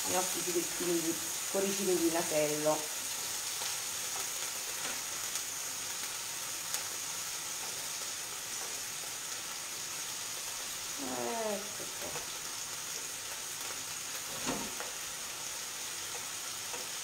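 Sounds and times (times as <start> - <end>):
fish sizzling in oil: 0.0 - 17.0.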